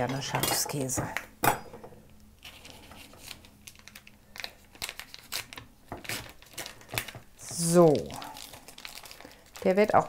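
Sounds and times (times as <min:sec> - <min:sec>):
paper wrapper crinkling: 0:02.4 - 0:10.0.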